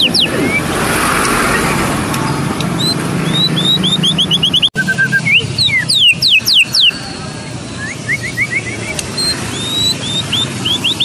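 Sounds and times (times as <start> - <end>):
bird singing whistled notes: 0.0 - 0.7, 2.8 - 7.1, 7.7 - 11.0
street traffic rumble: 0.0 - 11.0.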